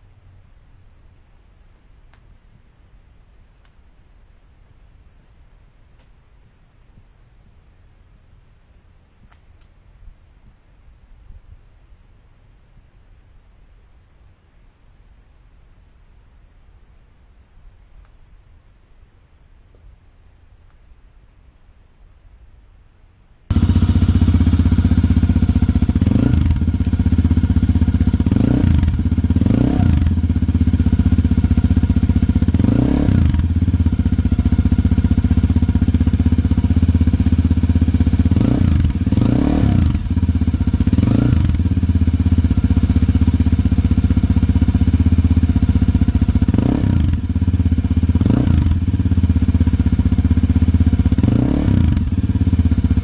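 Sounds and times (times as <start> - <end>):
motorcycle engine idling and revving: 23.5 - 53.0.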